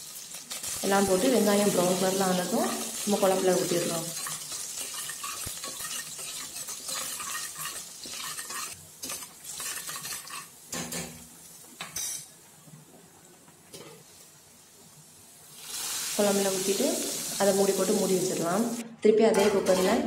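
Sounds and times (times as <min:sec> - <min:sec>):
oil sizzling: 0:00.0 - 0:12.6, 0:13.7 - 0:18.8
ladle scraping metal pot: 0:04.2 - 0:10.5.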